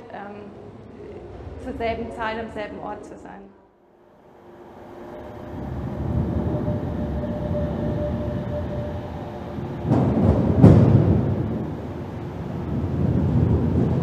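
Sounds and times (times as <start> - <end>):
deep rumbling: 0.0 - 3.4, 4.1 - 14.0
faint hum: 0.0 - 14.0
heavy thuds: 9.8 - 11.8.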